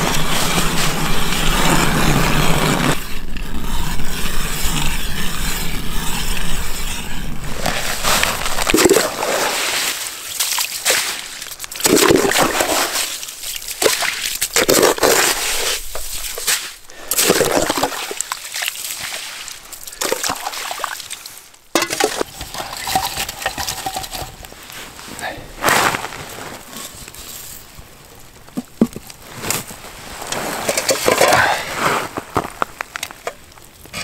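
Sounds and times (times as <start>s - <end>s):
water sloshing and splashing: 7.4s - 25.1s.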